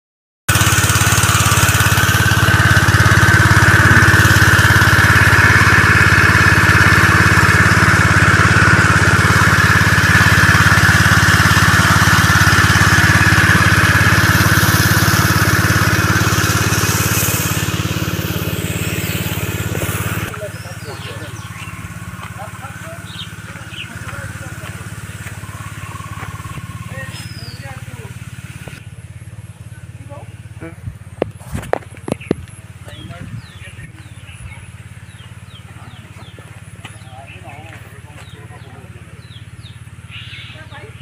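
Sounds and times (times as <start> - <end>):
water spraying: 0.5 - 28.8
small engine running: 0.5 - 41.0.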